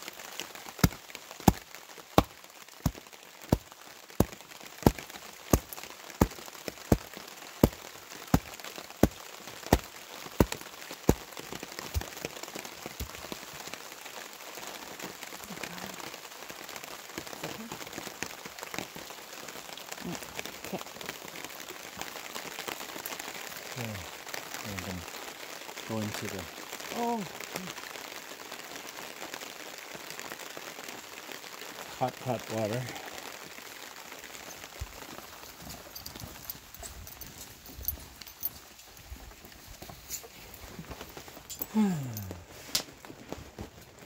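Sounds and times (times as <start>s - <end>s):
hatchet chopping on wooden board: 0.8s - 1.6s, 2.2s - 3.6s, 4.2s - 11.2s.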